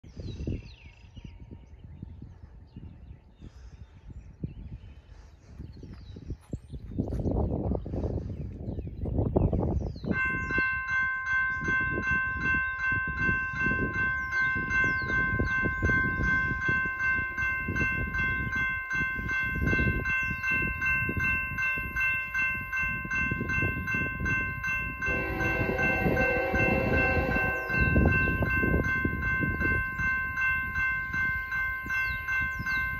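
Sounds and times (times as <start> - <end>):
crossing bell ringing: 10.1 - 32.9
train horn: 25.0 - 29.3.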